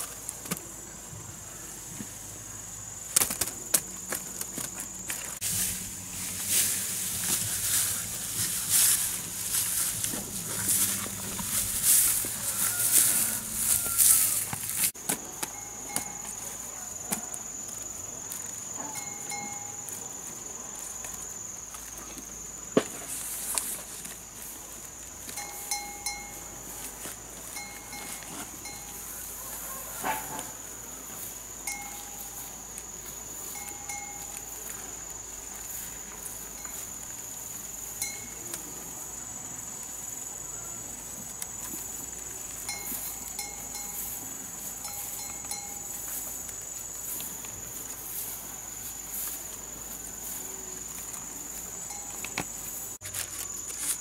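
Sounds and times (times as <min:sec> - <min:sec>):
high-pitched insect drone: 0:04.7 - 0:21.7, 0:25.3 - 0:29.8, 0:30.5 - 0:40.8, 0:41.6 - 0:54.0.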